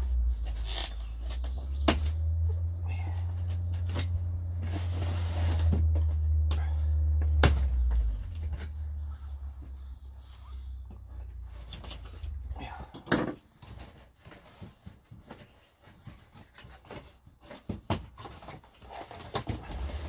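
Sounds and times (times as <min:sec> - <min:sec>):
low rumble: 0:00.0 - 0:13.1.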